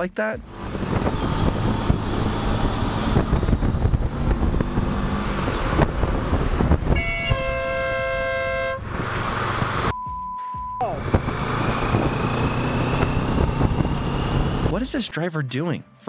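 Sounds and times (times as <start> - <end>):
motorcycle running: 0.4 - 9.9, 10.8 - 14.8
wind noise on microphone: 0.4 - 9.9, 10.9 - 14.8
vehicle horn blast: 6.9 - 8.9.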